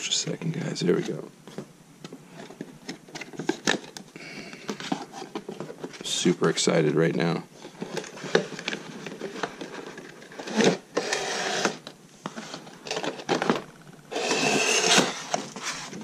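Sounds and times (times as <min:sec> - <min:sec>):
cardboard scraping against card: 0:07.7 - 0:13.4, 0:14.1 - 0:16.0.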